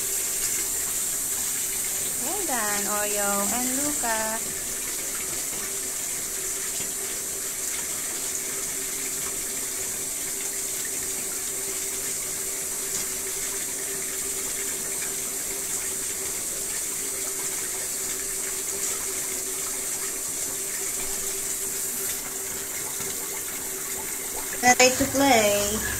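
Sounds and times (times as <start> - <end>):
steady hissing noise: 0.0 - 4.4
faint constant hum: 2.1 - 4.4.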